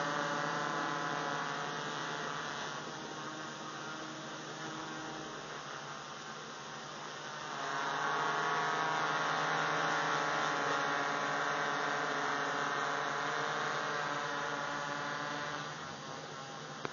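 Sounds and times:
quadcopter buzzing: 0:00.0 - 0:16.9.

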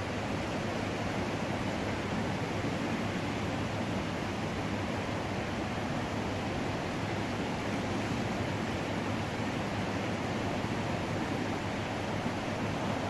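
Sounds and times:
river rushing: 0:00.0 - 0:13.0
waves lapping: 0:10.6 - 0:13.0.

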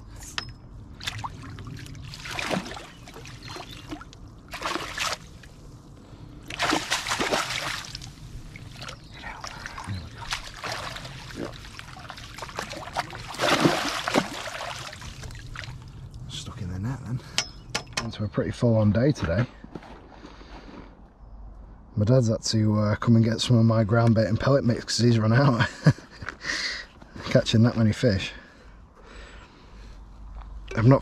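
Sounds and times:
fish thrashing and splashing: 0:01.0 - 0:05.5, 0:06.4 - 0:16.0
water streaming through net: 0:01.1 - 0:05.4, 0:06.4 - 0:16.0.

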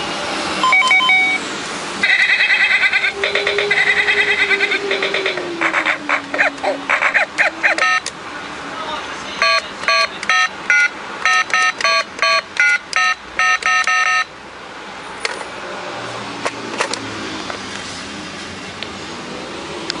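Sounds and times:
toy telephone beeps: 0:00.6 - 0:01.4, 0:02.0 - 0:03.0, 0:07.7 - 0:08.1, 0:09.4 - 0:14.3.

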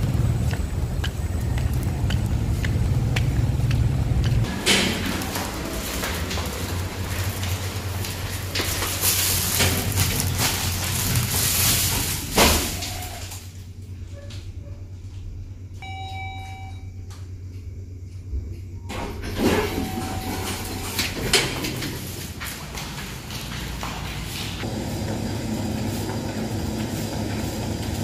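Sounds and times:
lift ride hum: 0:00.0 - 0:28.0
lift doors sliding: 0:04.4 - 0:11.2, 0:18.9 - 0:28.0.

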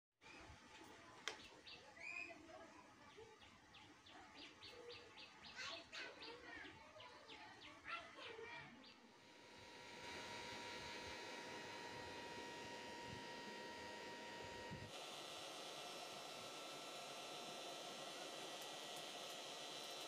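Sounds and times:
faint birds chirping: 0:00.2 - 0:09.2.

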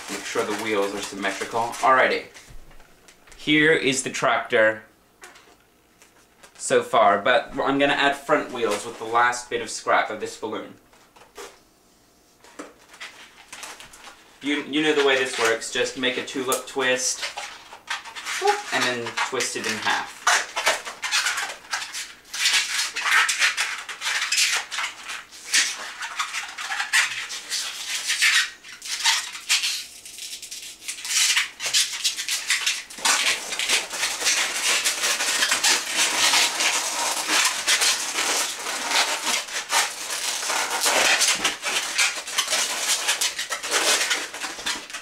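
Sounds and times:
balloon squeaking as twisted: 0:00.0 - 0:02.2, 0:14.8 - 0:45.0.

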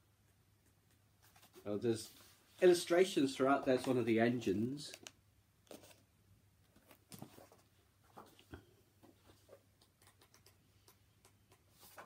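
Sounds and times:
book pages turning: 0:05.7 - 0:06.1, 0:11.7 - 0:12.0.

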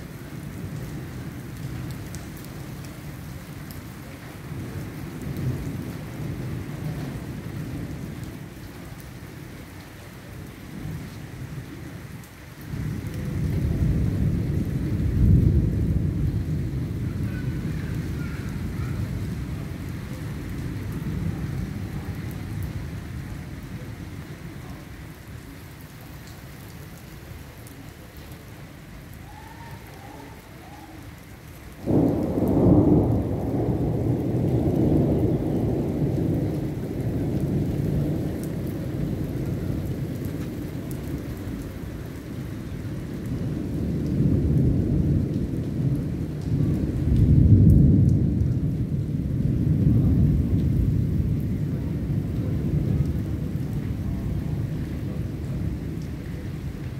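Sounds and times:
steady rain: 0:00.0 - 0:56.9
thunder clap and rumble: 0:04.4 - 0:09.0, 0:12.6 - 0:24.1, 0:31.7 - 0:56.9.

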